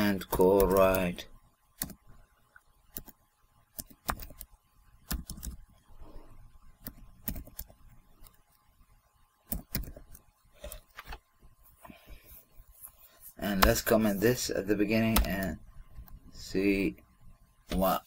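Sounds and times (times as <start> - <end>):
computer keyboard typing: 0.4 - 1.1, 1.8 - 2.0, 2.9 - 5.6, 6.8 - 8.4, 9.5 - 10.3, 15.0 - 15.5.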